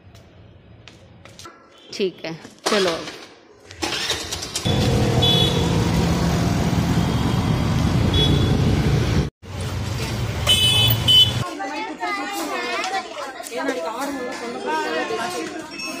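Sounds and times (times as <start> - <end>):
road noise: 0.0 - 11.5
scooter engine: 3.8 - 11.4.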